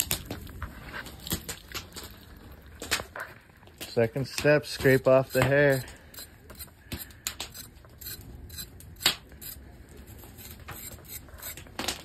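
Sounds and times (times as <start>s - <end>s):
knife scraping on wooden board: 4.8s - 12.0s.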